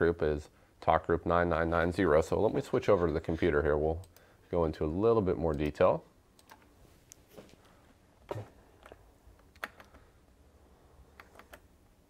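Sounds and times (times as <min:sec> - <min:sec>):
keyboard and mouse clicks: 0:06.4 - 0:06.7, 0:08.8 - 0:10.0, 0:11.1 - 0:11.7.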